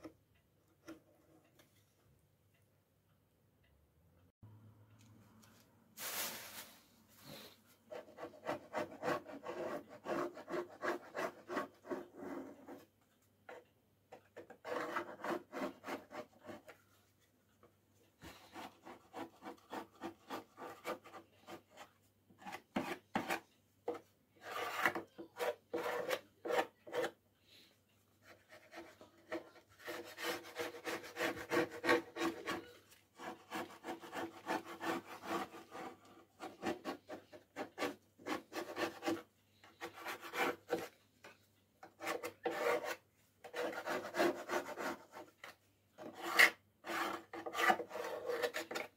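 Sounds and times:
metal scraper scraping paint: 14.4s - 16.7s, 22.4s - 27.2s, 28.5s - 41.0s, 41.8s - 45.3s, 46.0s - 48.9s.

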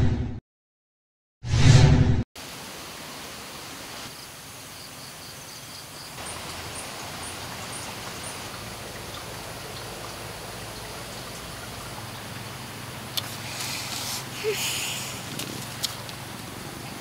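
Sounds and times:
steady hiss: 13.2s - 16.6s.

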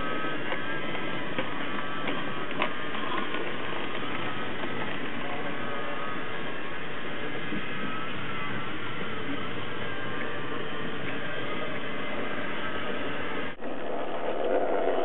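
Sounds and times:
model train rolling on track: 0.0s - 15.0s
clicks over rail joints: 0.4s - 5.2s.

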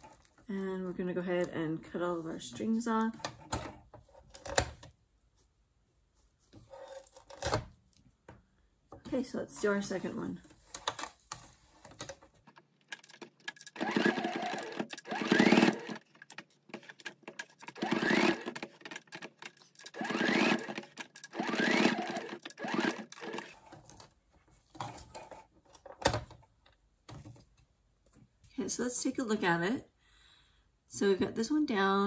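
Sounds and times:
sewing machine motor whining: 13.0s - 16.0s, 17.4s - 23.5s.

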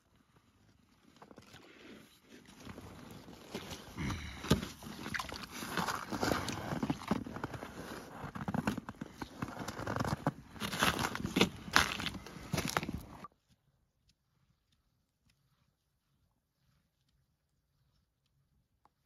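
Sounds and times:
crunching ice scrapes: 0.5s - 13.3s
water sloshing and gurgling: 0.8s - 13.3s.

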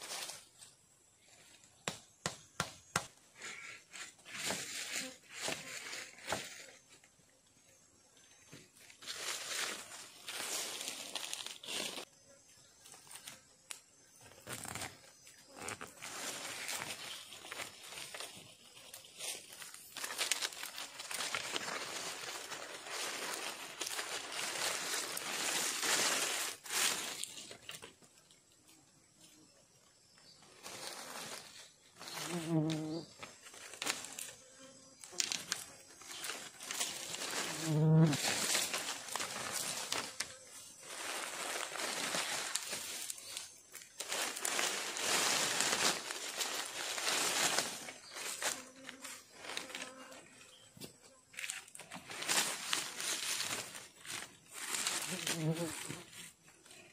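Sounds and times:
dry leaf litter rustling: 8.8s - 12.1s, 15.6s - 27.9s, 30.6s - 34.4s, 35.1s - 50.6s, 51.4s - 56.4s.

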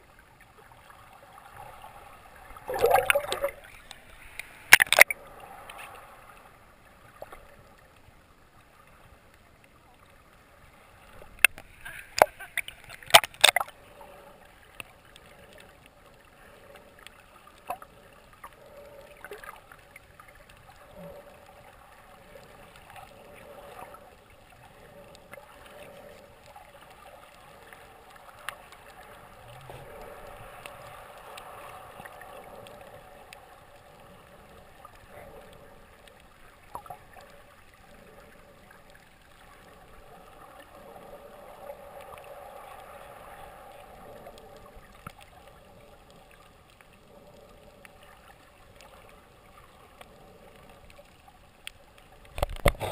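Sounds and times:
underwater wash of water: 0.0s - 52.9s
faint clicks and taps: 44.3s - 52.9s.

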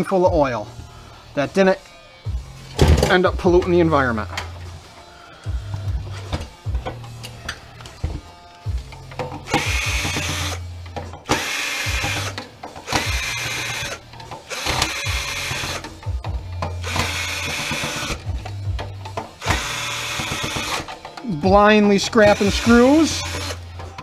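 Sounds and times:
cordless drill running in bursts: 9.5s - 10.6s, 11.3s - 15.8s, 16.8s - 18.2s, 19.4s - 20.9s, 22.2s - 23.6s.

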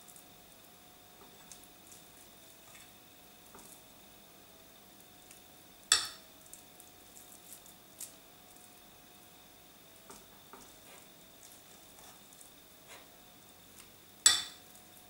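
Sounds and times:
metal spoon clinking on bowl: 14.2s - 14.6s.

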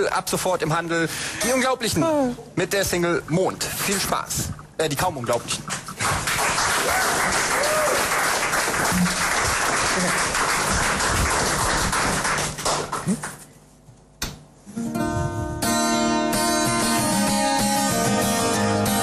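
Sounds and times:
audience applause: 6.0s - 13.4s
acoustic guitar and keyboard pop song: 14.8s - 19.0s.

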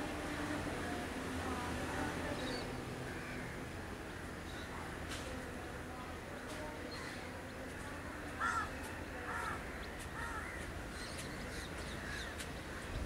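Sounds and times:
crow cawing: 8.4s - 9.6s.

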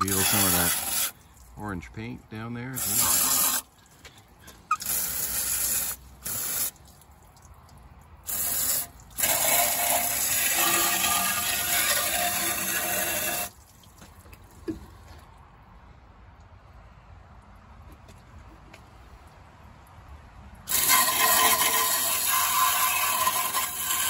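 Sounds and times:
hose nozzle water spraying: 0.0s - 1.7s, 2.6s - 15.1s, 20.7s - 24.0s.

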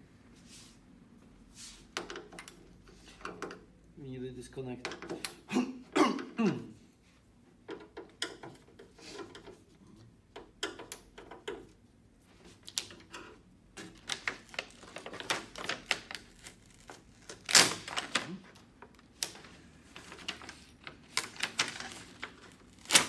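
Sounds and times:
plastic sheet crinkling: 14.0s - 18.6s, 19.9s - 23.0s.

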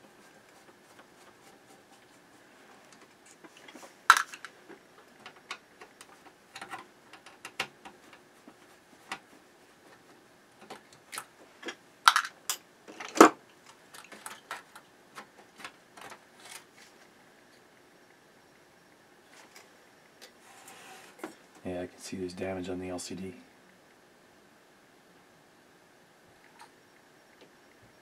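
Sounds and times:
small parts clicking and tapping: 10.6s - 16.7s.

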